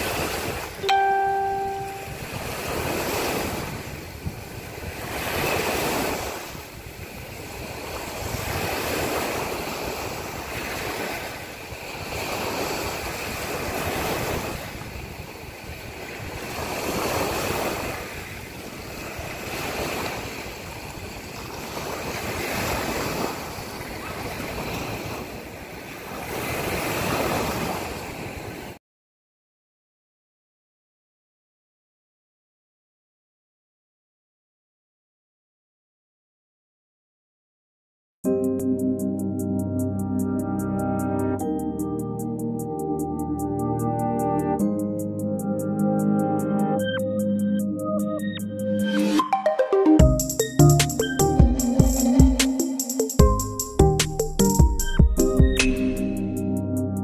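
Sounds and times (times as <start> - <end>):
sea waves washing onto shore: 0.0 - 28.8.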